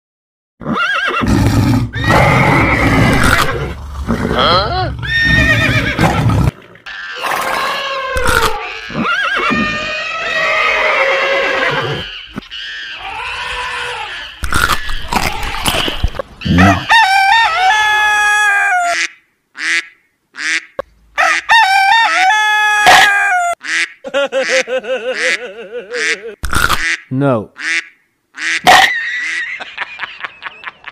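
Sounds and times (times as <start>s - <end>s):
hen clucking: 11.8s - 19.8s
rooster crowing: 16.4s - 19.0s, 21.2s - 23.6s.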